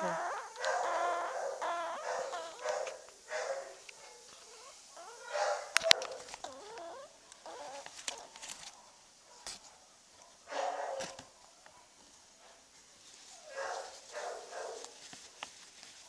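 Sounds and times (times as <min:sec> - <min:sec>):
animal whining: 0:00.0 - 0:08.6.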